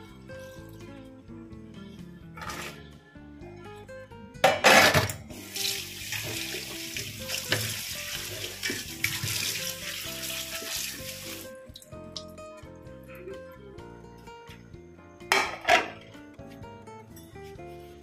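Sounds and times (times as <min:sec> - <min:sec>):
background music: 0:00.0 - 0:18.0
kitchen tap running into sink: 0:05.3 - 0:11.5.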